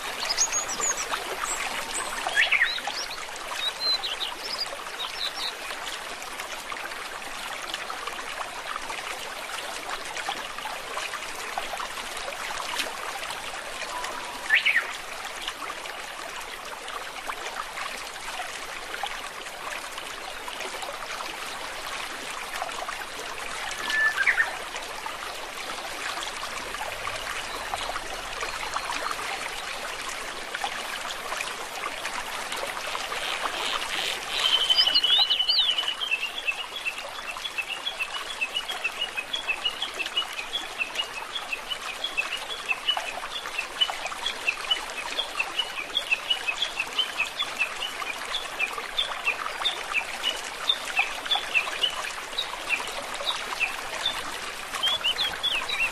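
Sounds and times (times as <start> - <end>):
flowing water: 0.0 - 55.9.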